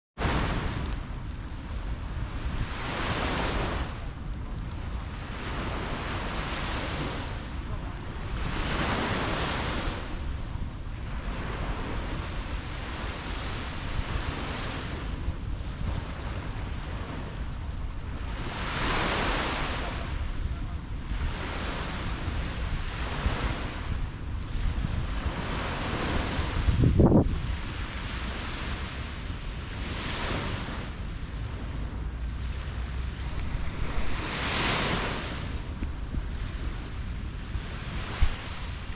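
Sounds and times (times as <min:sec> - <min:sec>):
small waves washing on sand: 0:00.2 - 0:38.9
wind rumble on microphone: 0:00.2 - 0:38.9.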